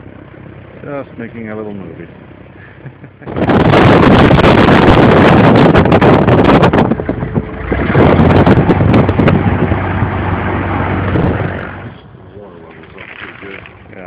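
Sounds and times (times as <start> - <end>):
seaplane engine and propeller: 0.0 - 14.0
wind buffeting microphone: 3.2 - 14.0.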